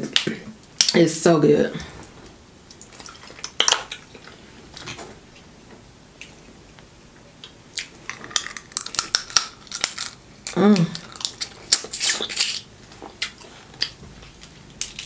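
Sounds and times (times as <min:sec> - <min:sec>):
crab shells cracking by hand: 0:07.8 - 0:12.6, 0:13.2 - 0:15.0.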